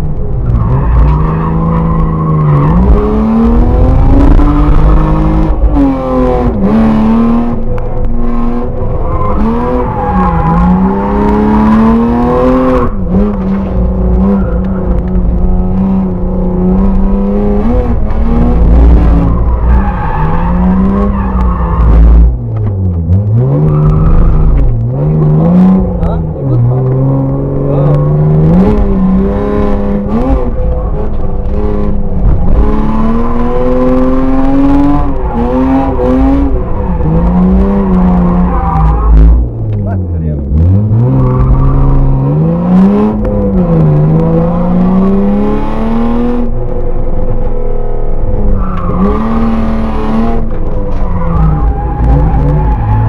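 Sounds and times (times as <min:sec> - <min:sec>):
car engine revving: 0:00.0 - 0:53.0.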